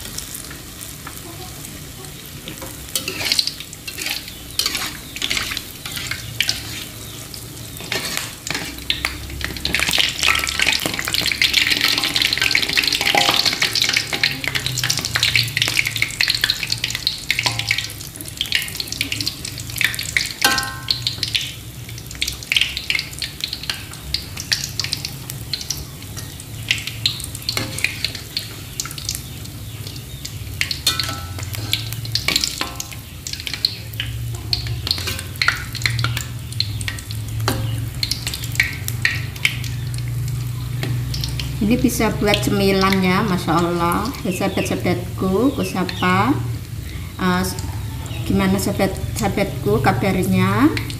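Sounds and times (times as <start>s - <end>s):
dough deep-frying in hot oil: 0.0s - 50.9s
metal spatula scraping a wok: 2.5s - 16.0s.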